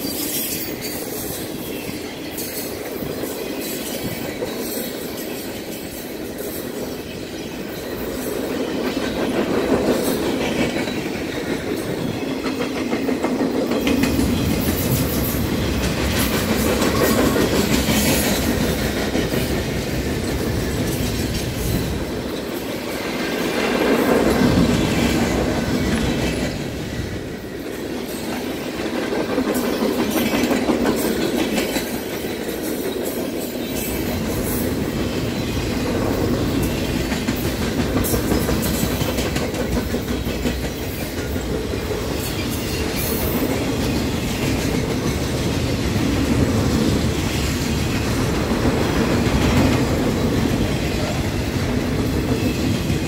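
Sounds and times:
low train rumble: 0:00.0 - 0:53.0
train wheels clicking over rail joints: 0:00.0 - 0:53.0.

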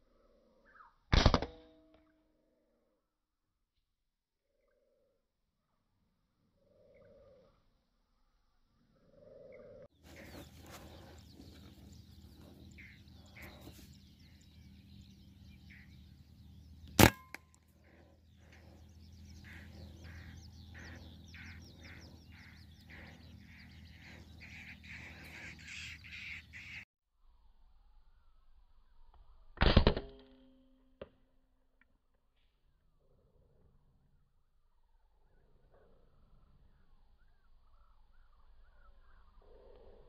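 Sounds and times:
air rifle shot: 0:01.1 - 0:01.6, 0:16.9 - 0:17.4
birds chirping: 0:06.6 - 0:07.6, 0:08.8 - 0:26.8, 0:36.6 - 0:40.0
steady low hum: 0:09.7 - 0:26.7.

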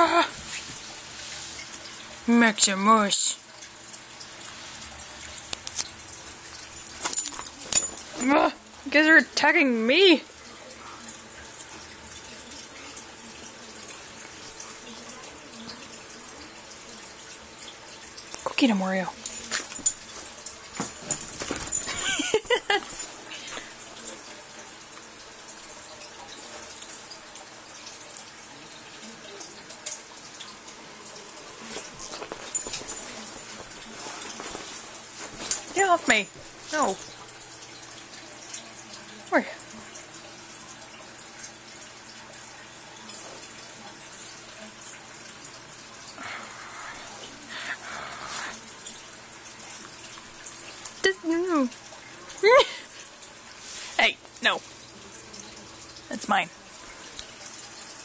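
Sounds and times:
dogs rustling and scuffling: 0:19.3 - 0:23.2, 0:31.6 - 0:36.7.

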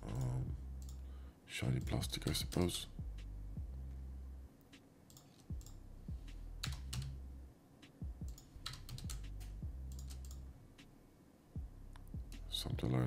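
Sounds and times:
low hum: 0:00.0 - 0:04.7, 0:05.5 - 0:13.0
keyboard and mouse clicking: 0:01.8 - 0:02.6, 0:05.1 - 0:05.8, 0:06.6 - 0:07.2, 0:08.3 - 0:10.4.

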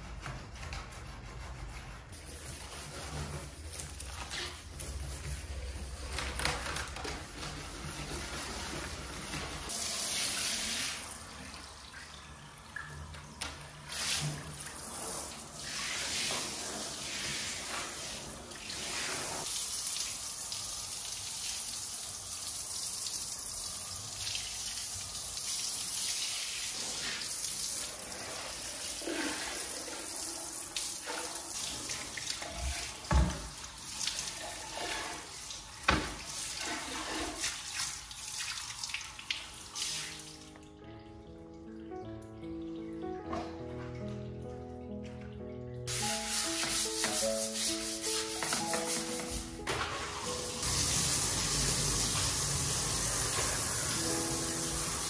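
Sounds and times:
shower head spraying water on tiles: 0:45.9 - 0:55.0.

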